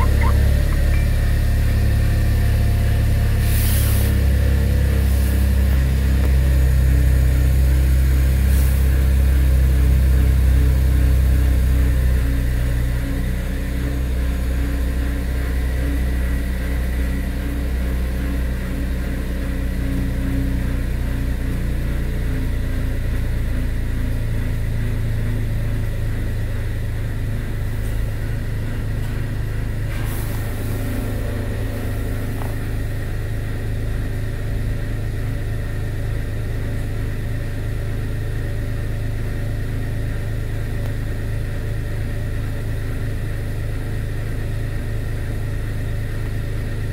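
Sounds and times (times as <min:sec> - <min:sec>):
car engine idling: 0:25.9 - 0:36.8.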